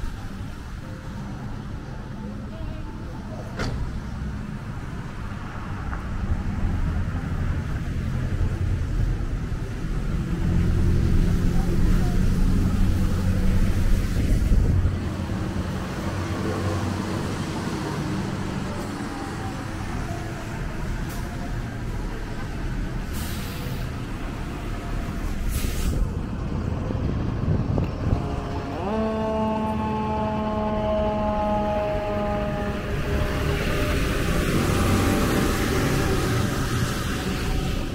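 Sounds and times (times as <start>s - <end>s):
vehicle engine rumble passing: 0.0s - 37.9s
tyres hissing on wet road: 5.4s - 26.4s, 31.5s - 37.9s
short sharp hiss: 25.5s - 26.1s.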